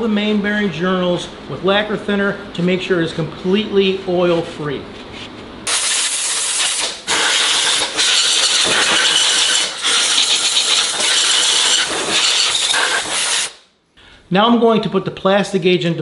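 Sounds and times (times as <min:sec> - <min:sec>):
compressed air blow gun hissing: 0:05.7 - 0:13.6.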